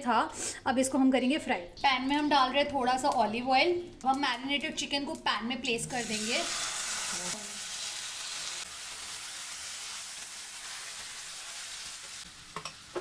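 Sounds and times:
chicken sizzling in a frying pan: 0:05.9 - 0:13.0.

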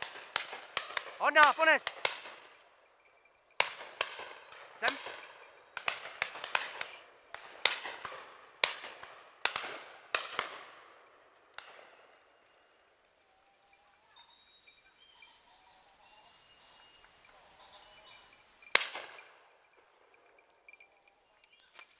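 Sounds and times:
shotgun shots echoing: 0:00.0 - 0:02.7, 0:03.6 - 0:12.2, 0:18.7 - 0:19.5
faint small-bird calls: 0:11.9 - 0:18.6.

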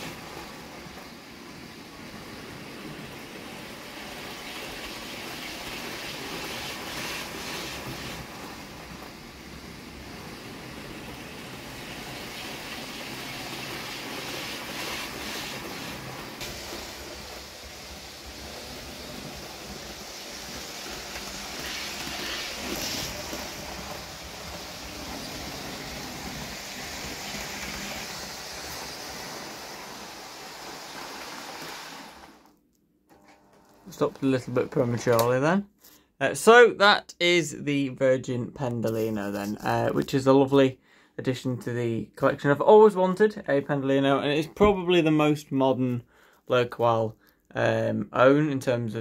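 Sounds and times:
model train whirring on track: 0:10.0 - 0:29.8.

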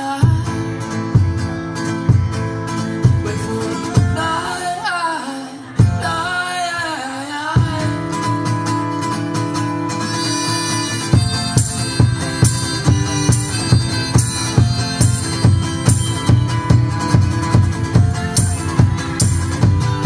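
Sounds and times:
person singing: 0:00.0 - 0:00.8, 0:03.0 - 0:08.4
acoustic guitar strummed: 0:00.0 - 0:20.0.

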